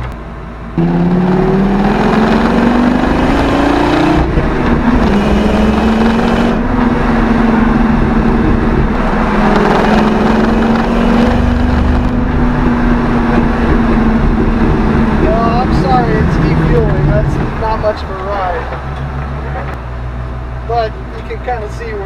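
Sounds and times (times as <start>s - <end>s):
truck engine revving: 0.0s - 19.8s.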